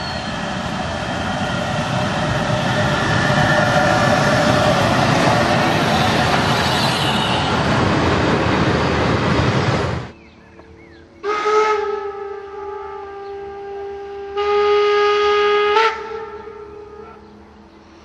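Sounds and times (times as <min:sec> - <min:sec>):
steam locomotive whistle: 0:00.0 - 0:07.8, 0:11.2 - 0:17.2
steam locomotive passing at speed: 0:00.0 - 0:10.1.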